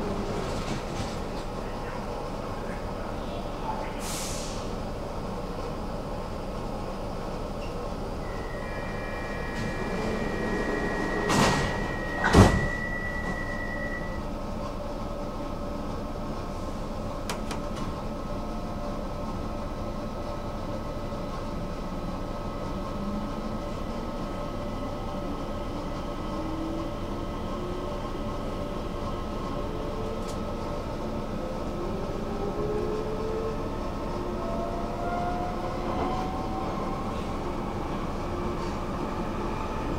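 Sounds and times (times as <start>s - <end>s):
train running noise: 0.0s - 39.9s
train motor whine: 8.2s - 14.2s
warning tone: 8.2s - 14.2s.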